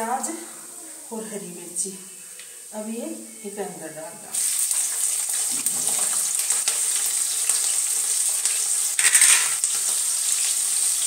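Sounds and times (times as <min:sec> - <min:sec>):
onions sizzling in hot oil: 0:04.3 - 0:11.0.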